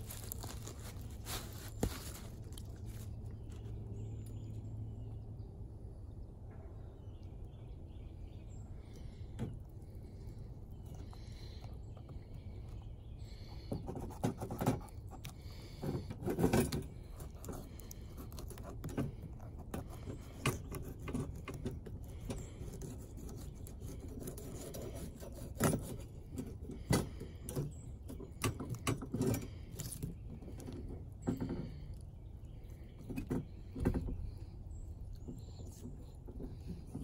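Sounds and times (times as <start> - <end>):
knife scraping fish: 13.9 - 27.2.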